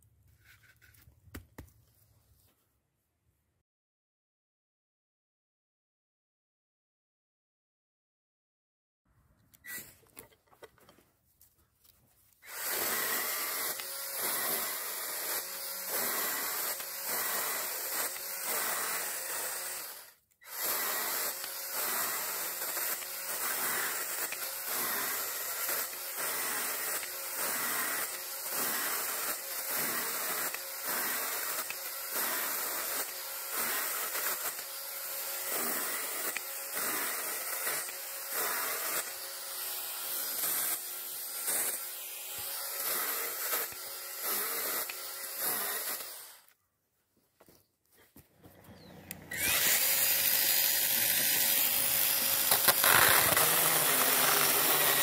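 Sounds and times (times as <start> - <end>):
pruning saw cutting wood: 12.4 - 46.6, 48.6 - 55.0.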